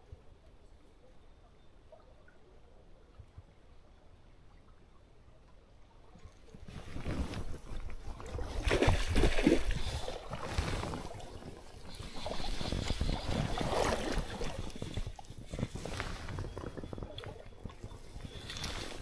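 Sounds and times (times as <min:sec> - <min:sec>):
water sloshing around wading legs: 0:06.2 - 0:19.0.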